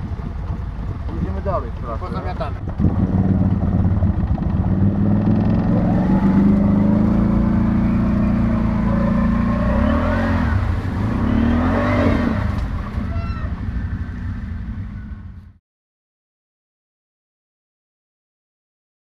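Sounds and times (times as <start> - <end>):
quad bike engine revving: 0.0 - 14.4.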